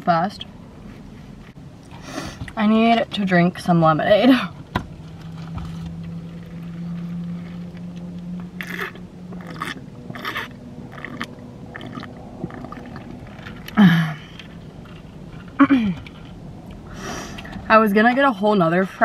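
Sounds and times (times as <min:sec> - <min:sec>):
low steady hum: 0:00.0 - 0:19.0
sipping through a straw: 0:08.6 - 0:13.7
gulping swallows: 0:08.6 - 0:14.4
chewing: 0:08.6 - 0:16.8.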